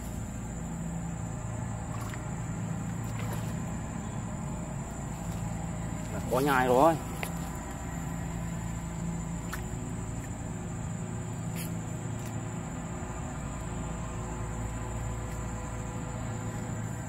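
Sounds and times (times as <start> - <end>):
low steady hum: 0.0 - 17.0
high-pitched insect buzzing: 11.4 - 11.9.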